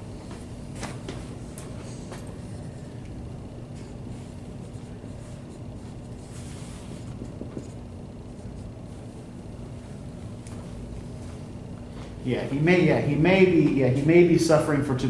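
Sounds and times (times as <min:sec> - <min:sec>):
low room hum: 0:00.0 - 0:15.0
marker writing on whiteboard: 0:03.8 - 0:08.7.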